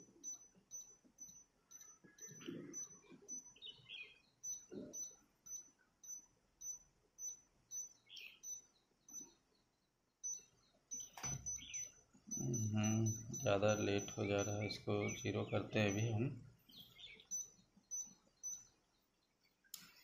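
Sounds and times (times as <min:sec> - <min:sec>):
short high beeps: 0:11.0 - 0:15.2.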